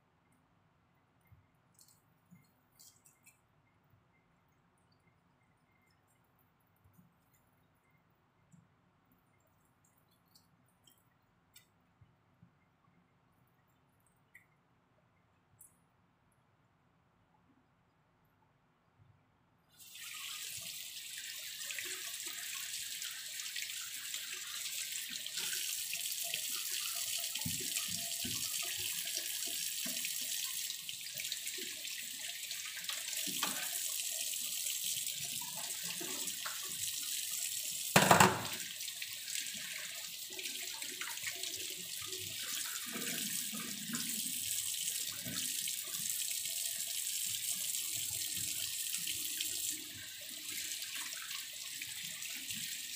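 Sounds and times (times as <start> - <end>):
tap water running into a sink: 19.8 - 52.9.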